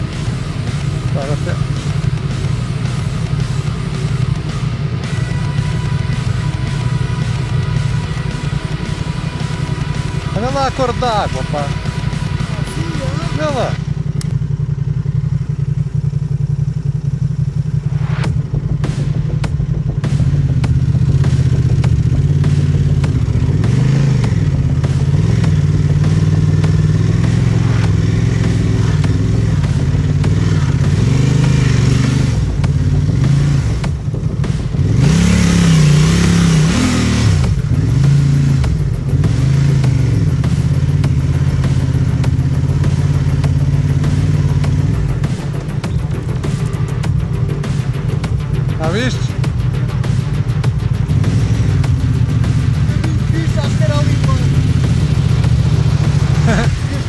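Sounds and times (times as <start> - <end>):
motorcycle engine revving: 0.0 - 57.0
rush of noise: 16.9 - 43.2, 43.9 - 57.0.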